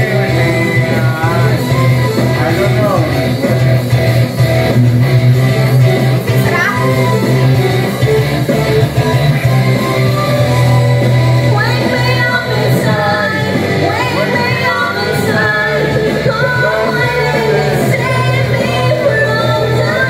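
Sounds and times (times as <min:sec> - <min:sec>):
karaoke backing music: 0:00.0 - 0:20.0
woman singing into a microphone: 0:05.8 - 0:07.6, 0:08.9 - 0:20.0.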